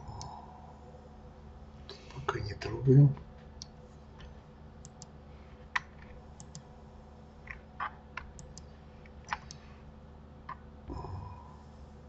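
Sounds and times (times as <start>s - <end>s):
faint steady hum: 0.0s - 12.0s
mouse and keyboard clicking: 5.8s - 6.6s, 7.5s - 8.7s, 9.3s - 9.6s.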